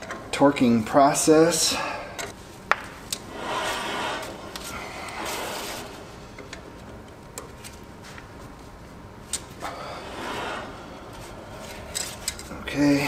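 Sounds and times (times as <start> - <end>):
wheel bearing rushing noise: 2.2 - 7.7, 9.3 - 13.0.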